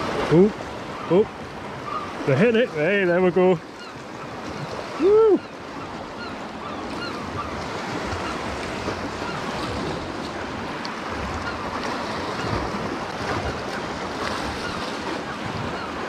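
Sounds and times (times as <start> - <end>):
surf breaking against rocks: 6.8 - 16.0
wind buffeting microphone: 6.9 - 15.8.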